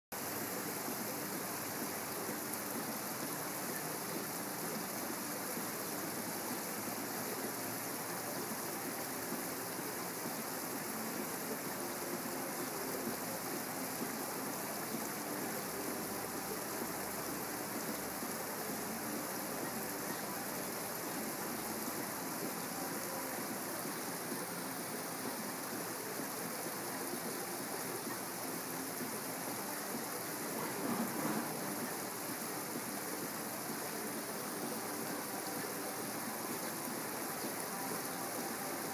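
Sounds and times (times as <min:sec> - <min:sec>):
rushing outdoor background noise: 0:00.1 - 0:38.9.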